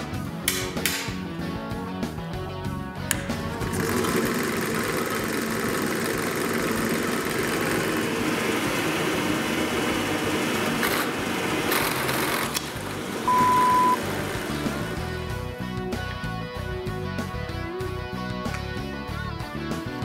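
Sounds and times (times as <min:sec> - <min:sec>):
drill press motor running: 0:03.3 - 0:15.4
loud steady beep: 0:13.3 - 0:14.0.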